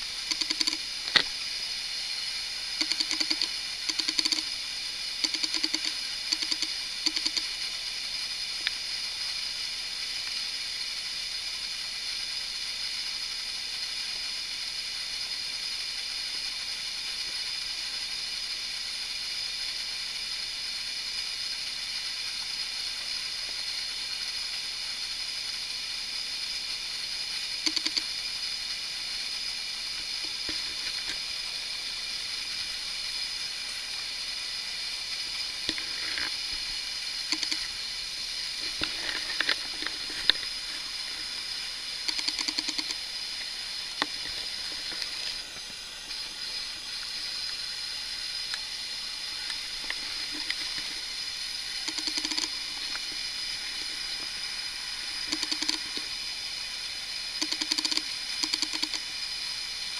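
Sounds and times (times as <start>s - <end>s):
steady high-pitched hiss: 0.0s - 59.9s.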